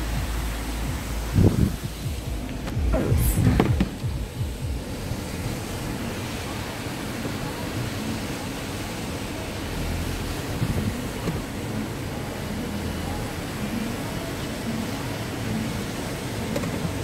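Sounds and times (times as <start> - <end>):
wind on microphone: 0.0 - 6.1
slowly moving vehicle rumble: 0.0 - 17.0.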